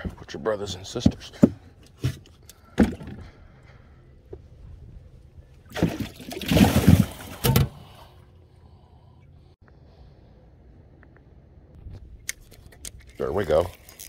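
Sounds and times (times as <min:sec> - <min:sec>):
water splashing and sloshing: 0:05.4 - 0:08.2.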